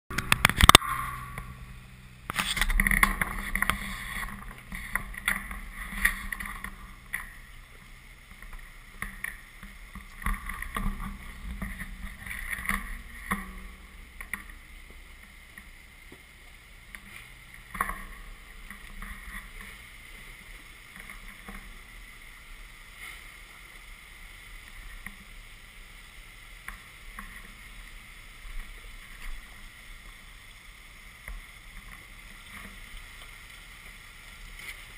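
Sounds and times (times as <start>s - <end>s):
engine running at low revs: 0.1s - 23.4s.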